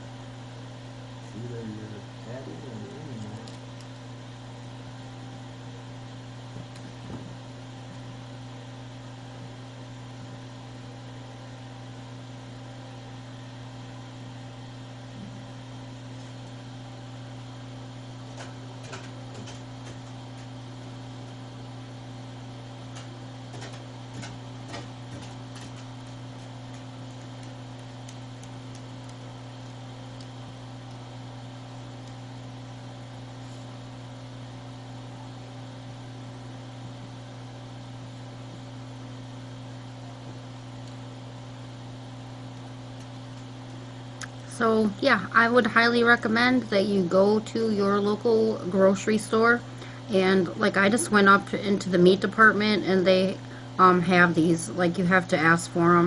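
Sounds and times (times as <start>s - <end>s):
steady low hum: 0.0s - 56.0s
faint clicks and taps: 22.9s - 31.0s.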